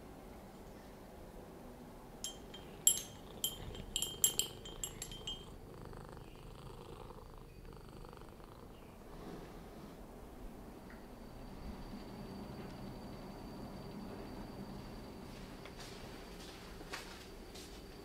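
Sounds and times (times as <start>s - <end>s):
light ringing clinks: 2.2s - 6.4s
cat purring: 2.3s - 10.0s.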